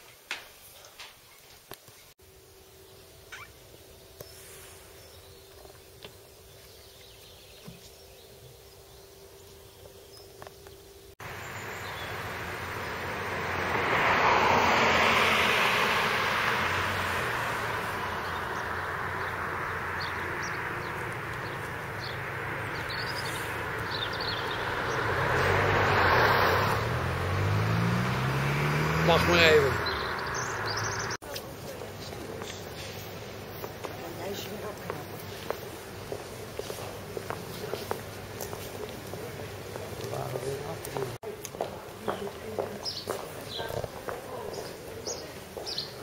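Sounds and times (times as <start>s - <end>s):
road traffic noise: 0.4s - 46.0s
vehicle passing: 11.2s - 46.0s.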